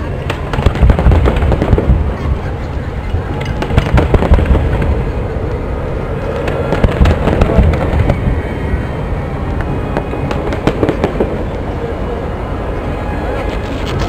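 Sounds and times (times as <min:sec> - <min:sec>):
fireworks crackling and popping: 0:00.1 - 0:05.3, 0:06.3 - 0:08.4, 0:09.5 - 0:11.8
fireworks booms: 0:00.2 - 0:02.2, 0:03.6 - 0:05.2, 0:06.4 - 0:08.4, 0:09.9 - 0:11.5.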